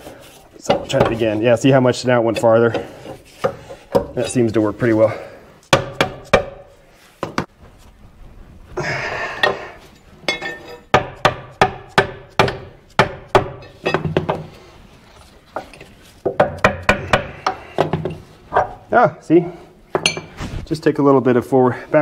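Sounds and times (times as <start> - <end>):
hammer striking steel: 10.3 - 14.1.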